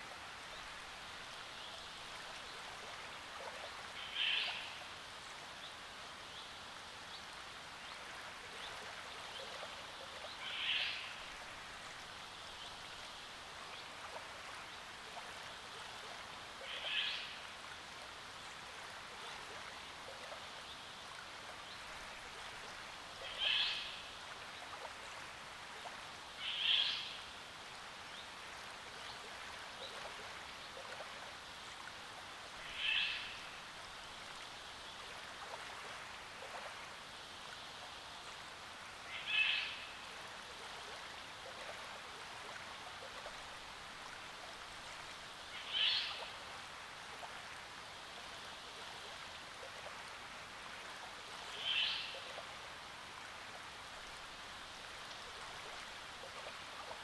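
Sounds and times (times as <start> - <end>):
small waves lapping: 0.0 - 57.0.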